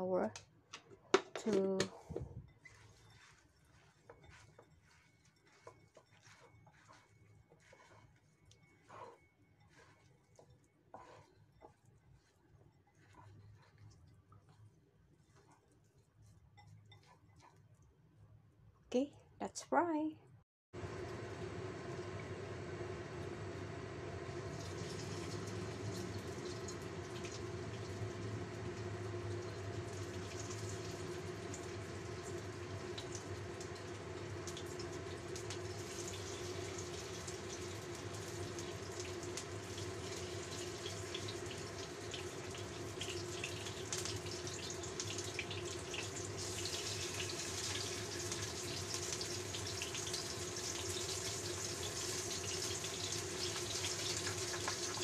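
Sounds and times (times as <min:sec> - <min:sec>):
fish frying in hot oil: 0:20.8 - 0:55.0.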